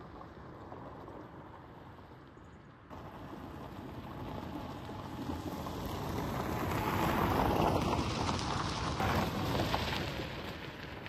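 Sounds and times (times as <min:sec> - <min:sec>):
tyres crunching on gravel: 0:02.9 - 0:11.0.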